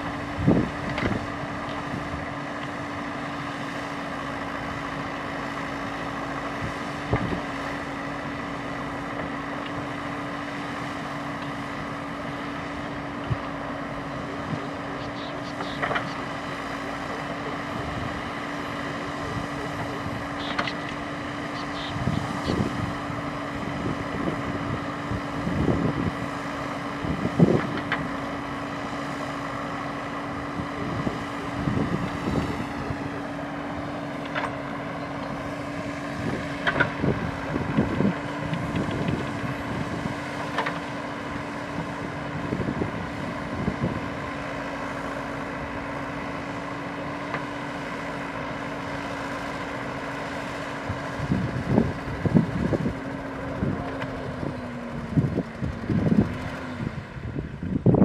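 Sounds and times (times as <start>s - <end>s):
diesel engine humming: 0.0s - 58.0s
digger bucket clunks and thumps: 15.6s - 16.2s, 36.2s - 39.5s, 40.1s - 40.9s.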